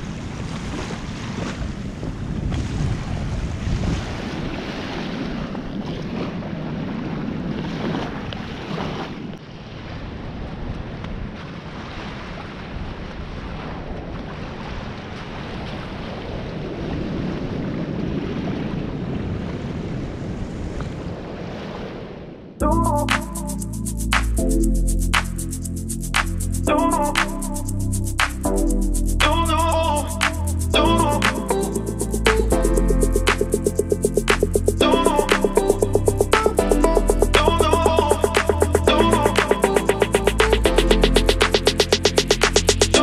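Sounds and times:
wind noise on microphone: 0:00.0 - 0:43.0
distant surf breaking: 0:33.1 - 0:43.0.

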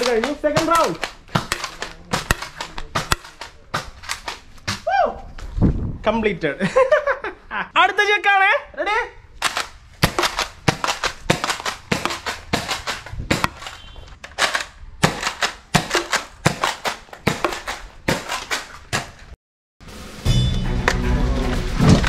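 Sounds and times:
toy foam blaster shots: 0:00.0 - 0:04.4, 0:09.4 - 0:19.2
foam rounds hitting plate target: 0:00.0 - 0:04.8, 0:09.4 - 0:13.8, 0:15.0 - 0:19.2.

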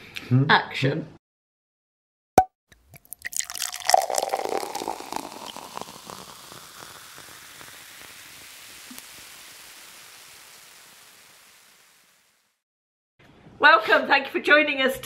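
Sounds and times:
faint hiss: 0:04.4 - 0:12.6.

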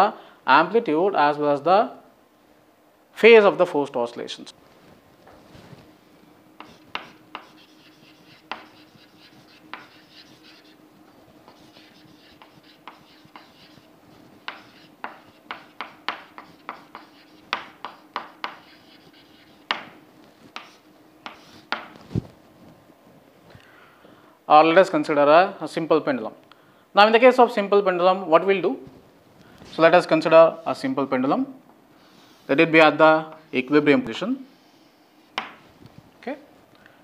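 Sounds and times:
chalk tapping and scratching: 0:06.6 - 0:22.0, 0:35.3 - 0:35.6.

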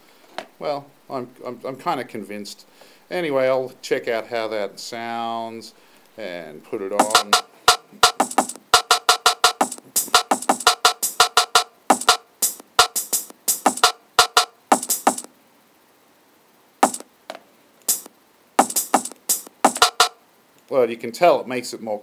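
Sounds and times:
sampled drum hits: 0:07.0 - 0:15.3, 0:16.8 - 0:17.1, 0:17.9 - 0:20.2.

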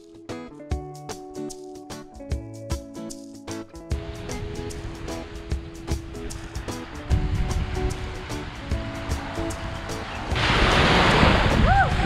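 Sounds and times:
background music with steady beat: 0:00.0 - 0:11.2
small waves breaking on sand: 0:04.0 - 0:12.0.

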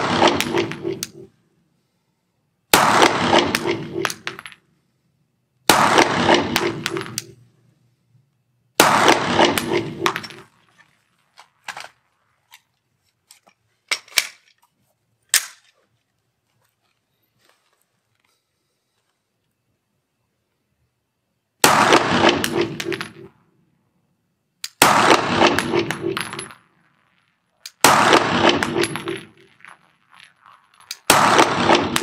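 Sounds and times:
pistol shots ringing indoors: 0:31.0 - 0:32.0.

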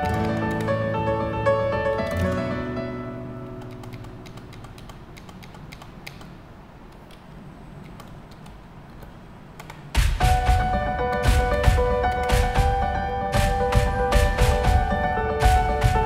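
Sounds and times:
background music: 0:00.0 - 0:05.4, 0:09.9 - 0:16.0
keyboard keystroke clicks: 0:03.6 - 0:07.2, 0:07.8 - 0:10.1.

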